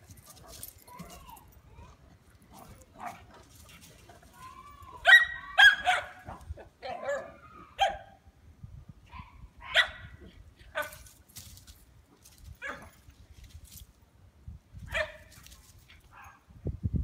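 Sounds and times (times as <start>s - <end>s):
dog barking: 5.0s - 8.2s, 9.6s - 10.1s, 14.9s - 15.2s.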